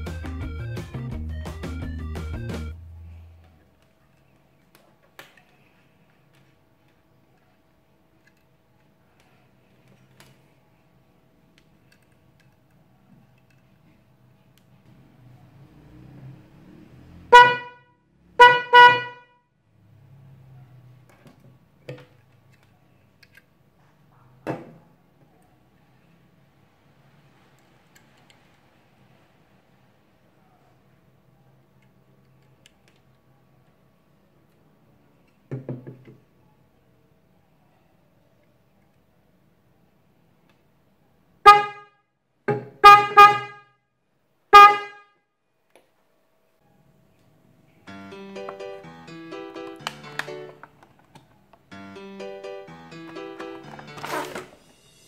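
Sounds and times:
electric horn honking: 17.3s - 19.4s, 41.5s - 41.9s, 42.8s - 43.6s, 44.5s - 45.1s.

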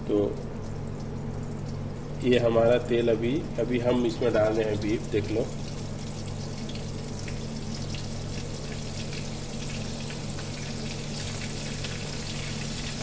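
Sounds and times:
meat sizzling in oil: 4.1s - 13.0s.

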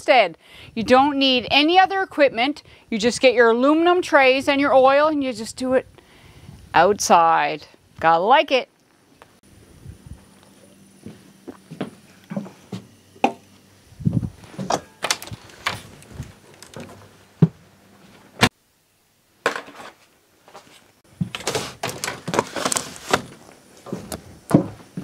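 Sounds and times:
footsteps on wooden deck: 11.0s - 13.4s, 15.7s - 18.2s, 23.8s - 25.0s.

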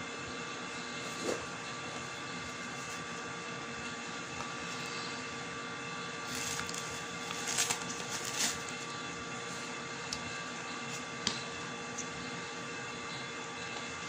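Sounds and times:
steady background hum: 0.0s - 14.0s
plastic gloves crinkling: 6.2s - 8.8s.

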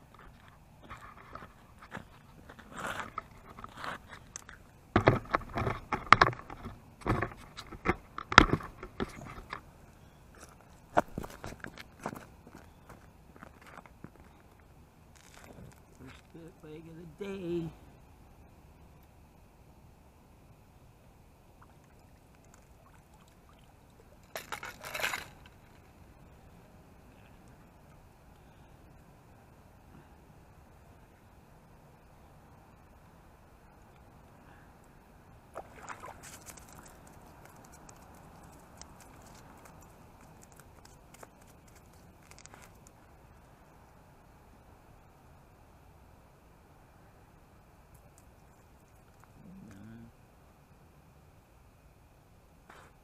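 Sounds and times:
water and slush splashing: 35.5s - 36.9s.

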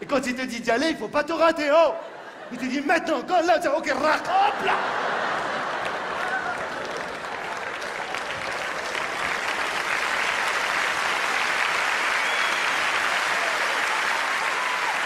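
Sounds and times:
audience applauding: 4.5s - 15.0s.

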